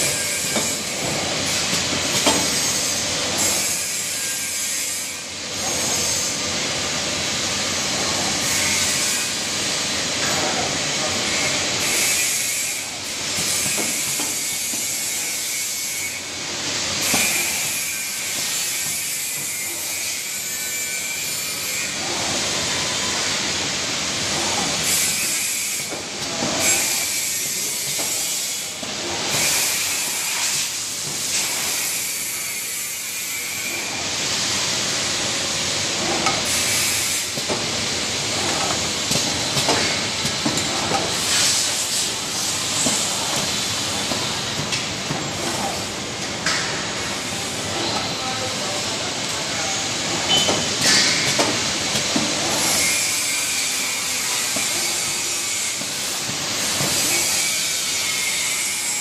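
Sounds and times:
machine clicks and knocks: 0:00.6 - 0:02.5, 0:50.2 - 0:52.4
machine hissing: 0:21.2 - 0:59.0.

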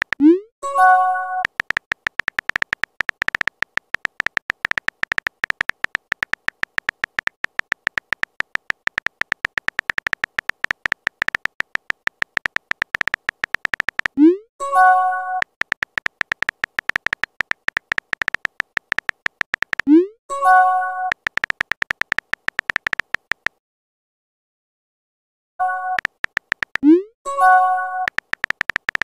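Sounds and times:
synthetic keyboard typing clicks: 0:00.0 - 0:23.6, 0:25.6 - 0:29.0.

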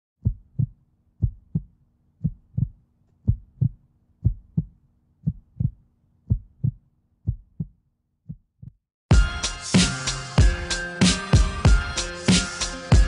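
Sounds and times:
heartbeat thumps: 0:00.2 - 0:08.8.

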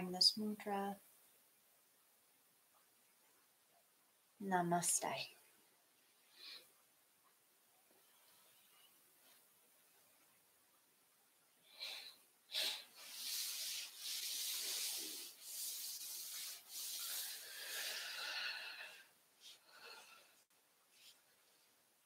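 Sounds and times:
clothing and hands rubbing: 0:11.8 - 0:18.2, 0:20.8 - 0:21.8.

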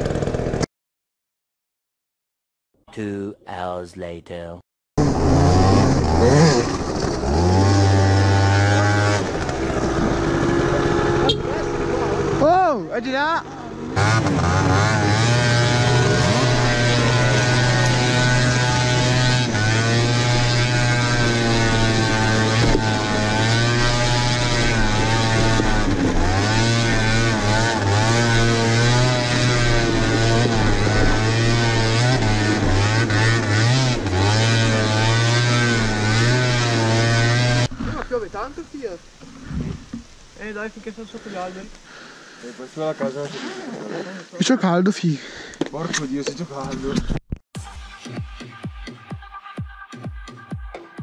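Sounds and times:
scooter engine revving: 0:00.0 - 0:00.6, 0:05.0 - 0:12.7, 0:13.4 - 0:38.0
wind noise on microphone: 0:39.4 - 0:40.0.

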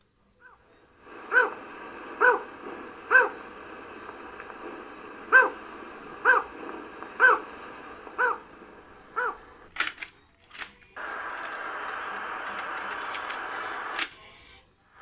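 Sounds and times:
tape hiss: 0:00.0 - 0:15.0
recorded bird call from speaker: 0:00.4 - 0:09.7
plastic cassette clicks: 0:09.4 - 0:14.2.

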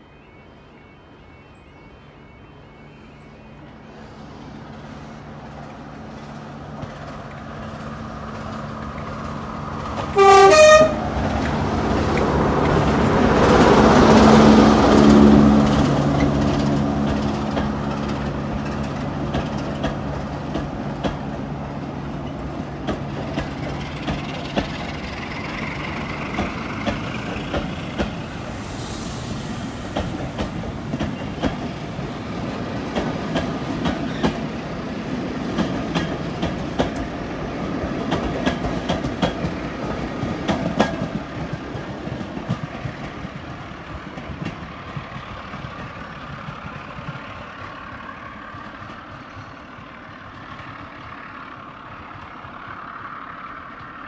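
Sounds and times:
diesel locomotive engine: 0:00.0 - 0:54.0
wheels clicking over rail joints: 0:06.7 - 0:10.2, 0:14.9 - 0:28.3, 0:29.8 - 0:54.0
train horn: 0:10.1 - 0:11.7.

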